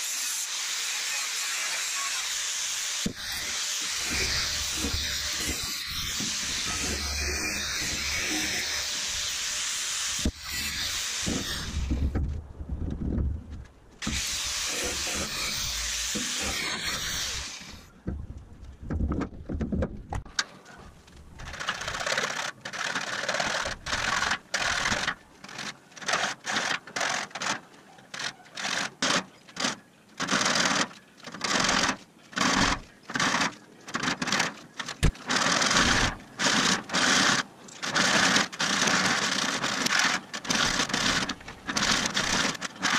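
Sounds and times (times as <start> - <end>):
angle grinder cutting steel: 0.0 - 12.1, 14.0 - 17.9
hacksaw sawing steel: 0.0 - 12.2, 14.0 - 17.9, 35.0 - 42.9.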